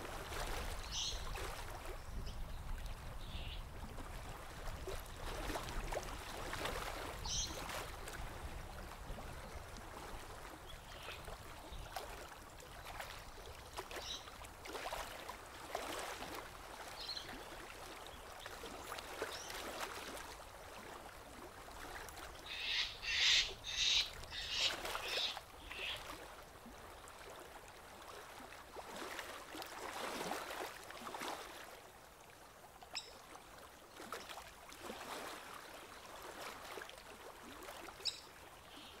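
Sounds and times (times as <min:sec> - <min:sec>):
wavelets lapping against bank: 0:11.2 - 0:31.7.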